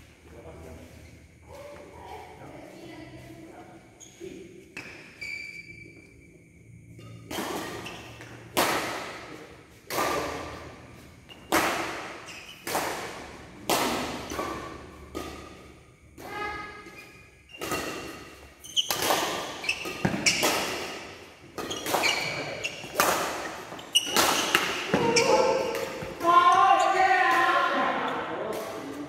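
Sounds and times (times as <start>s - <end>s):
rackets hitting shuttlecock: 7.1s - 29.0s.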